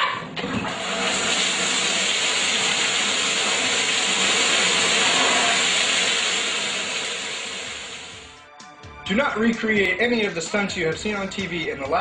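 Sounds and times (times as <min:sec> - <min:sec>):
shower pouring water: 0:00.4 - 0:08.3.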